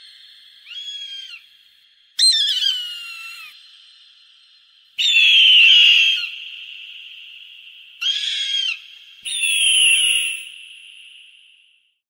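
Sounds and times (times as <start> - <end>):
hawk screaming with echo: 5.0 - 10.6.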